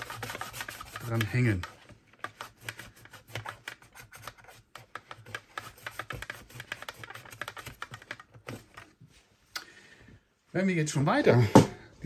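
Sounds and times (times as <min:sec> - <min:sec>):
cloth scrubbing hard plastic: 0:00.0 - 0:09.4.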